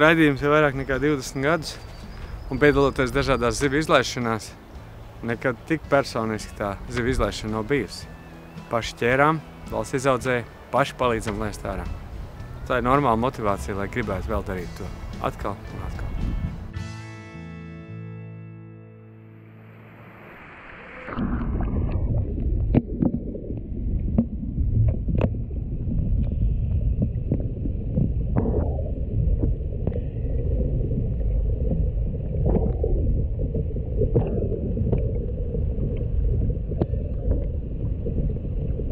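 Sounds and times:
muffled underwater water rumble: 0:11.0 - 0:16.7, 0:19.7 - 0:38.9.

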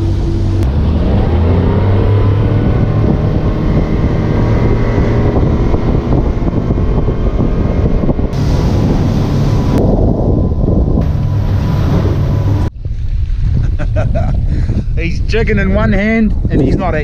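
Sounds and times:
outboard engine running: 0:00.0 - 0:12.7
wind on microphone: 0:00.0 - 0:17.0
water rushing from wake: 0:07.4 - 0:12.7.

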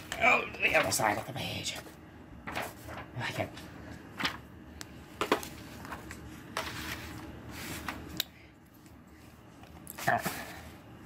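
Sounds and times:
paper rustling: 0:00.0 - 0:04.5, 0:05.2 - 0:08.1.

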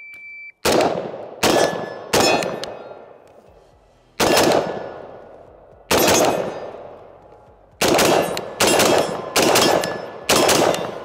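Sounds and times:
rifle shots: 0:00.6 - 0:02.9, 0:04.2 - 0:05.2, 0:05.9 - 0:07.0, 0:07.8 - 0:11.0
ringing tail of shots: 0:00.6 - 0:03.0, 0:05.9 - 0:07.0, 0:07.8 - 0:11.0.

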